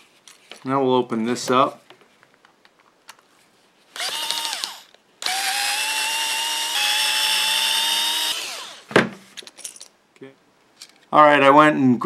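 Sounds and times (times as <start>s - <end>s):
electric screwdriver motor whine: 4.0s - 8.9s.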